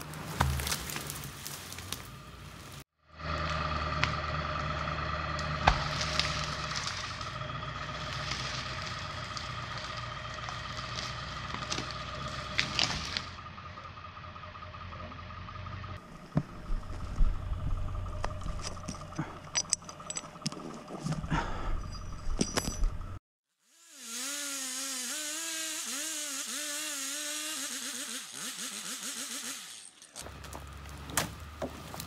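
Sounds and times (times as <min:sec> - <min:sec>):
crunching footsteps: 0:00.0 - 0:02.8, 0:16.0 - 0:19.5
log scraping along ground: 0:00.0 - 0:02.8, 0:05.7 - 0:13.4, 0:30.2 - 0:32.0
truck engine rumbling with whine: 0:00.0 - 0:23.2, 0:24.1 - 0:32.0.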